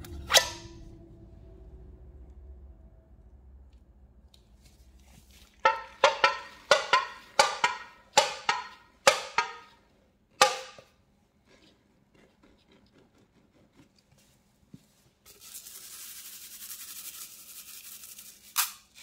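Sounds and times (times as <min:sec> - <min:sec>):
sharp ringing knocks: 0:05.7 - 0:09.7.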